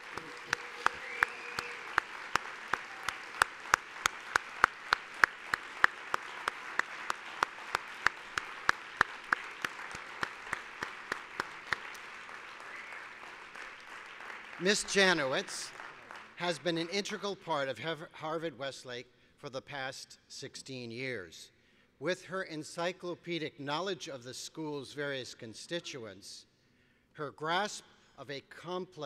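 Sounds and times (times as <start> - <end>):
sharp evenly spaced claps: 0.0 - 16.5
audience applauding: 0.0 - 16.9.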